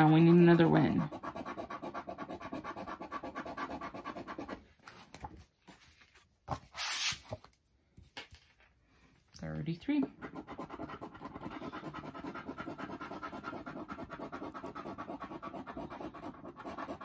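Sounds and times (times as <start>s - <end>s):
coin scratching lottery ticket: 0.0s - 4.6s, 10.2s - 17.0s
card brushing sound: 6.5s - 7.4s.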